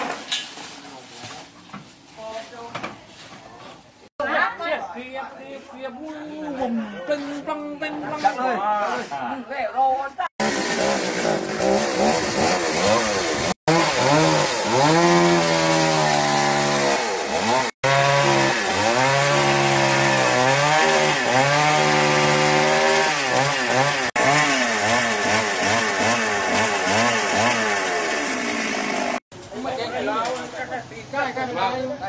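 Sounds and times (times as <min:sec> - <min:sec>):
chainsaw cutting wood: 0:10.4 - 0:29.2.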